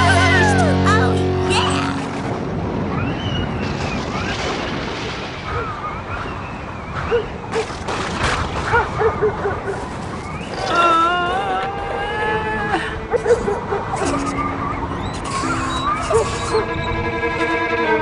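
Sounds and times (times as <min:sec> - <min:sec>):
steady rain: 0:00.0 - 0:08.9, 0:09.7 - 0:16.8
wind: 0:00.0 - 0:18.0
thunder cracks: 0:02.2 - 0:07.0.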